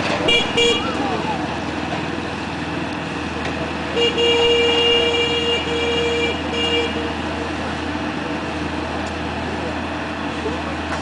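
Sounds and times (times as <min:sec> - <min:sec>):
diesel engine running: 0:00.0 - 0:11.0
loud steady tone: 0:00.2 - 0:01.5, 0:03.8 - 0:08.6.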